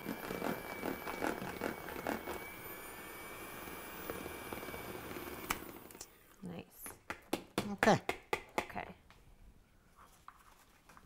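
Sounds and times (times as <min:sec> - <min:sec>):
electric hand mixer whining: 0:00.0 - 0:06.2.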